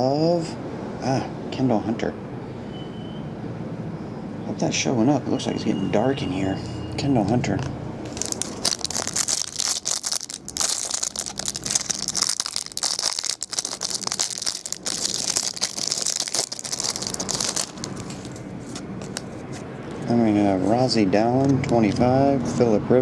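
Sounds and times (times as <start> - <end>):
plastic packaging crinkling: 8.1 - 19.6.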